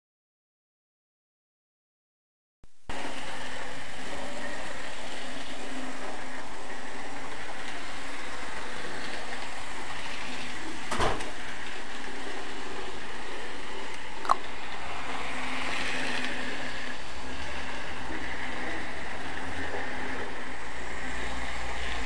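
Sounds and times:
model train motor whirring: 0:02.9 - 0:22.0.

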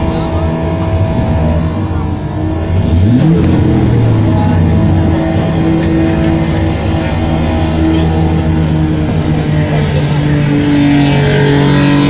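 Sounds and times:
car engine revving and idling: 0:00.0 - 0:12.0.

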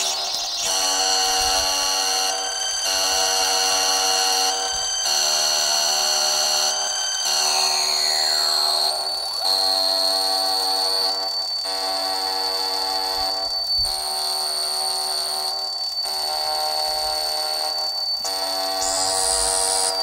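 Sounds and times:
synth tone clusters: 0:00.0 - 0:08.9
buzzy electronic synth drone: 0:00.0 - 0:15.5, 0:16.1 - 0:20.0
steady high whine: 0:00.0 - 0:20.0.

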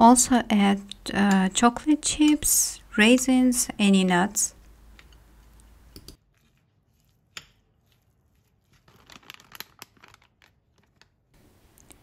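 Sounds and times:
spoon scraping bowl: 0:06.0 - 0:08.9.

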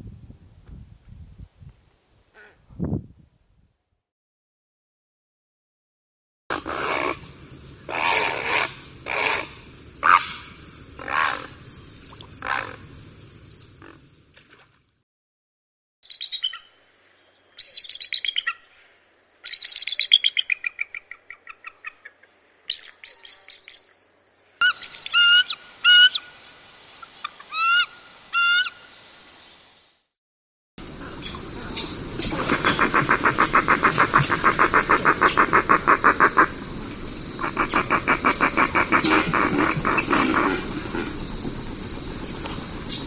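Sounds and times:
eagle high chattering calls: 0:24.6 - 0:29.6, 0:37.4 - 0:40.6
heron harsh croaks: 0:37.4 - 0:40.6.

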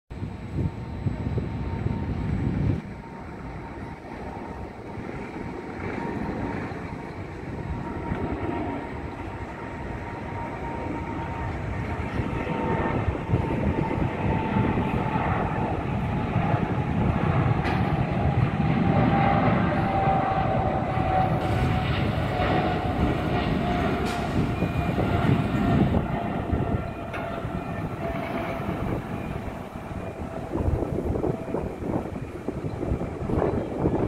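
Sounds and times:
jet engines at takeoff: 0:00.1 - 0:34.0.

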